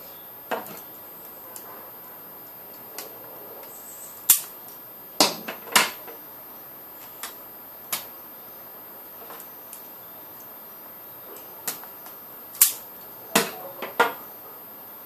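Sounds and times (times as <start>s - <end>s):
hand tools clicking and tapping: 11.4s - 14.2s.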